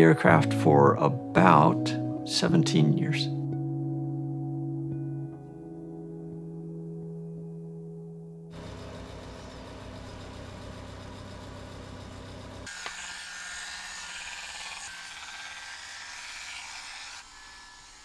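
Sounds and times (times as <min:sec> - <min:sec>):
electric shaver buzzing: 0:12.6 - 0:18.0.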